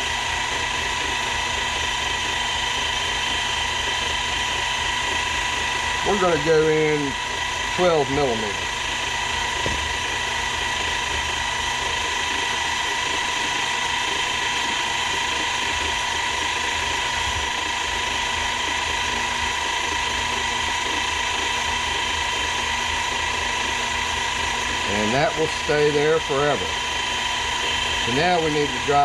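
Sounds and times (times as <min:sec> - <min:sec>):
milling machine whining: 0:00.0 - 0:29.0.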